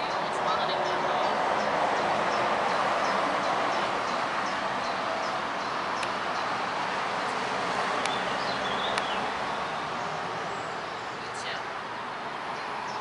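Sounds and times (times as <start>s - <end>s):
small birds chirping: 0.0s - 13.0s
sharp bird calls: 7.9s - 11.6s.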